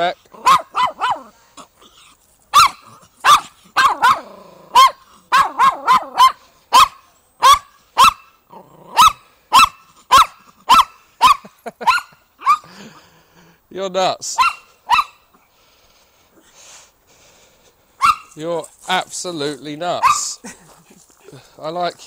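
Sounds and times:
small dog barking: 0.4s - 1.3s, 2.5s - 8.3s, 8.9s - 12.7s, 14.4s - 15.2s, 18.0s - 18.4s, 20.0s - 20.4s.

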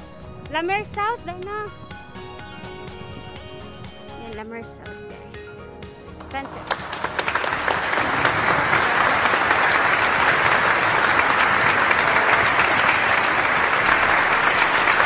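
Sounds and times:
applause from many hands: 6.2s - 15.0s.

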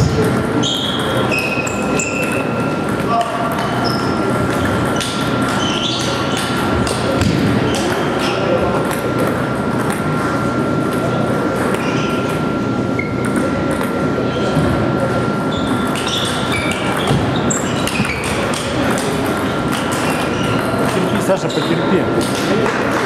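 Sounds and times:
table tennis balls clicking: 0.2s - 10.3s, 15.6s - 23.0s.

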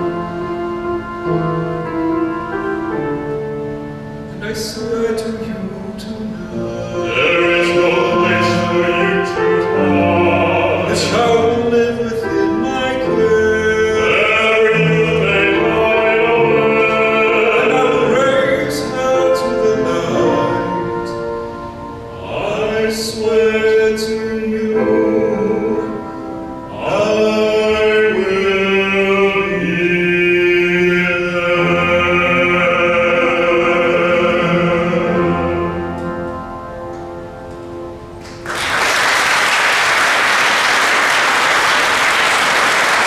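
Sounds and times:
piano accompaniment: 0.0s - 43.0s
two men singing a duet: 4.4s - 20.8s, 22.2s - 25.9s, 26.7s - 35.6s
audience applause: 38.2s - 43.0s.

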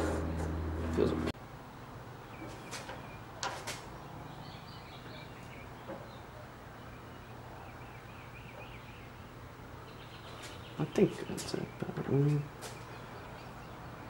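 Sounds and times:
steady low hum: 0.0s - 2.4s.

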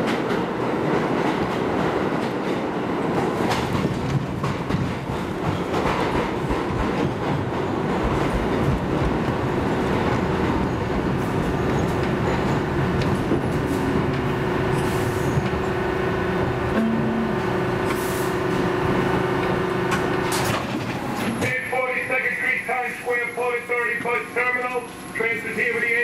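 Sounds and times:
subway train wheels rumbling: 0.0s - 26.0s
steady low tone: 16.7s - 17.9s.

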